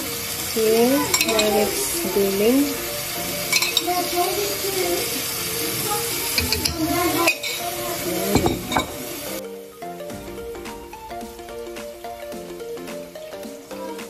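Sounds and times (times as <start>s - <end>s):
chicken sizzling in skillet: 0.0s - 9.7s
metal spoon clinking on pan: 3.5s - 4.0s.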